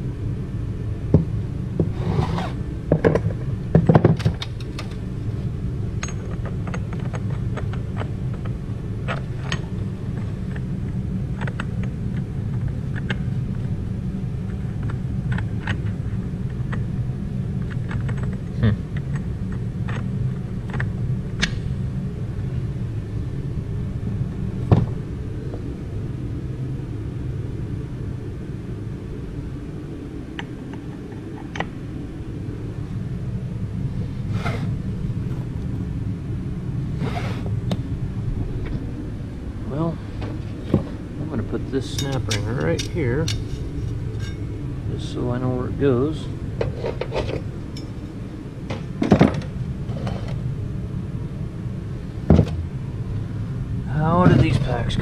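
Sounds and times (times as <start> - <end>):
low rumble: 2.6 - 55.0
metal clanks: 41.8 - 44.4
steel parts clinking on workbench: 42.0 - 44.4.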